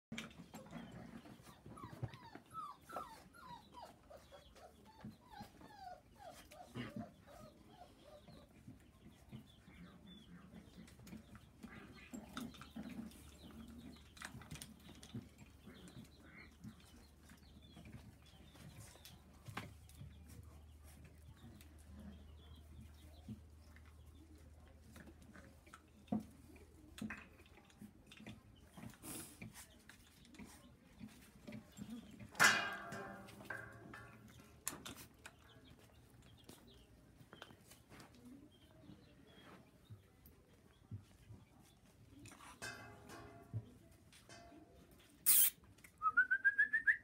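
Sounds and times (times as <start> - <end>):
puppies whimpering and squeaking: 0.2 - 26.9.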